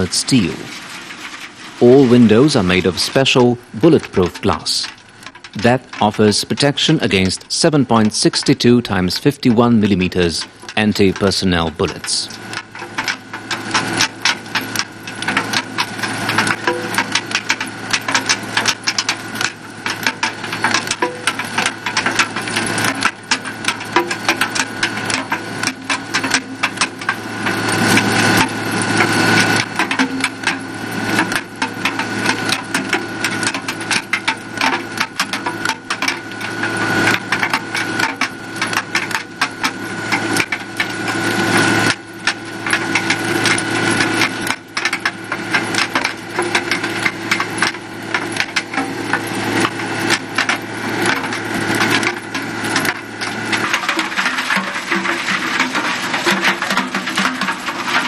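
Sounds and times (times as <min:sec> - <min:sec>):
diesel engine drone: 0:00.0 - 0:31.3.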